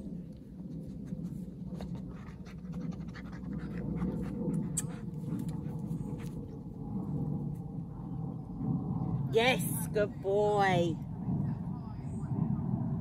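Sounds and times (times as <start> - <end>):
dog sniffing and panting: 0.6 - 6.7.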